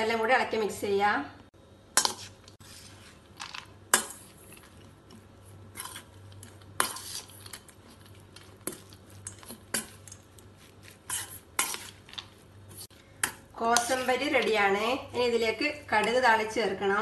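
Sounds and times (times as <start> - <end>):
spoon stirring moist salad: 2.0 - 14.8.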